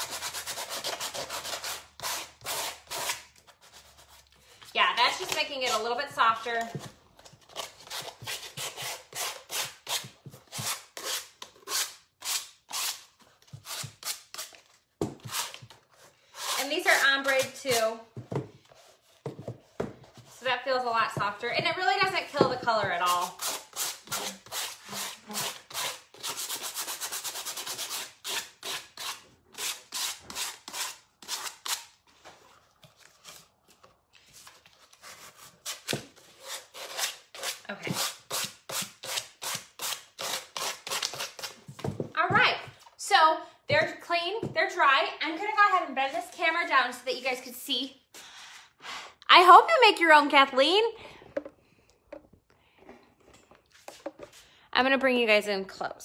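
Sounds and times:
sandpaper rubbing on shoe: 0:00.0 - 0:04.2, 0:23.1 - 0:31.9
sandpaper scuffing a shoe: 0:07.9 - 0:14.6.

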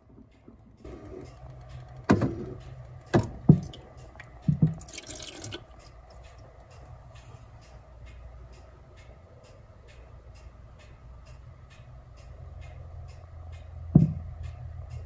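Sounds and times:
water pouring and splashing: 0:03.2 - 0:05.9.

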